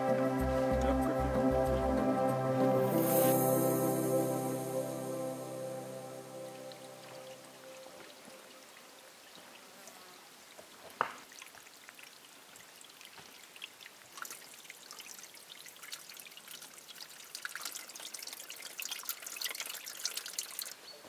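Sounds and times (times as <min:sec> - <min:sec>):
water trickling into a bottle: 0:11.2 - 0:20.9.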